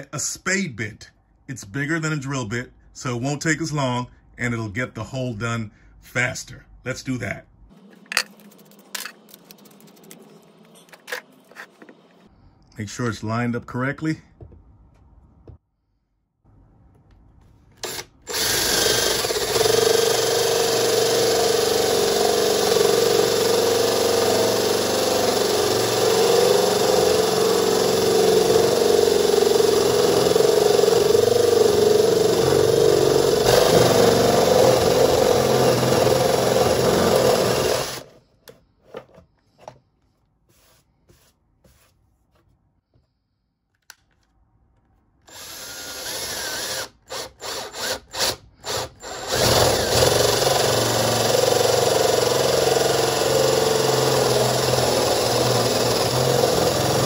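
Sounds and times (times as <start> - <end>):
cordless drill boring into wood: 17.8 - 38.1, 45.3 - 57.0.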